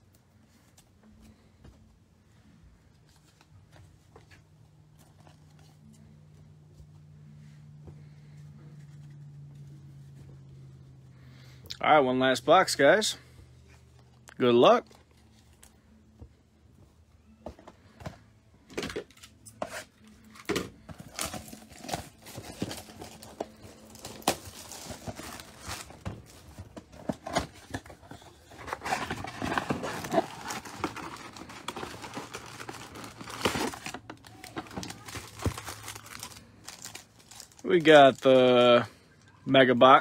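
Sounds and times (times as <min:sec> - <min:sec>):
foil wrappers crinkling: 0:20.0 - 0:39.0
cardboard box tearing: 0:23.9 - 0:36.4.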